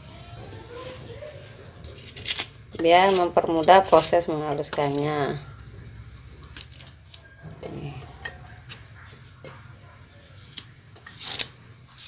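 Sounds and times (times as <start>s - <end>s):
knife cutting ginger: 1.8s - 5.2s, 10.4s - 12.0s.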